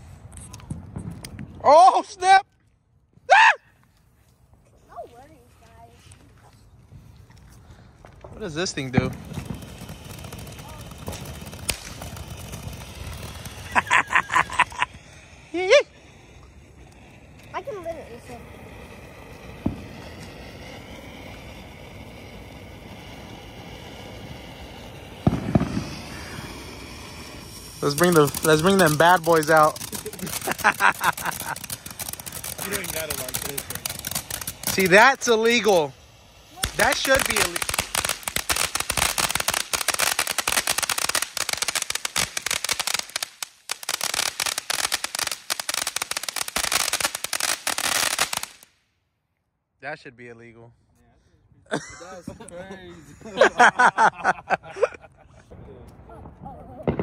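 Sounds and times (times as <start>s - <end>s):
firework pops: 0.3s - 1.6s, 6.9s - 15.0s, 16.4s - 35.8s, 36.5s - 48.7s, 55.9s - 57.0s
firework fountain hissing: 4.8s - 48.8s, 51.7s - 55.5s.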